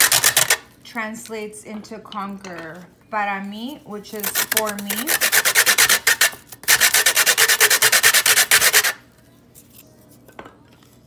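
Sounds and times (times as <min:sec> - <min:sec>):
stick scraping on metal grater: 0:04.2 - 0:09.0.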